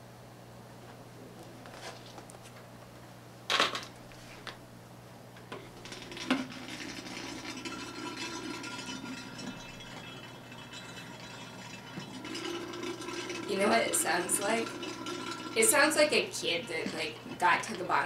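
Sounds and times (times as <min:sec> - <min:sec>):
steady low hum: 0:00.0 - 0:18.0
tubing and bucket knocks: 0:05.5 - 0:18.0.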